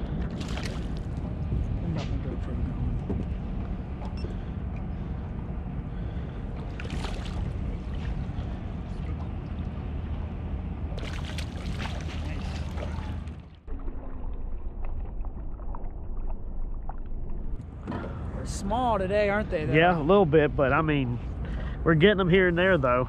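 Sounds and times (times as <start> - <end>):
boat motor humming: 0.0 - 14.7.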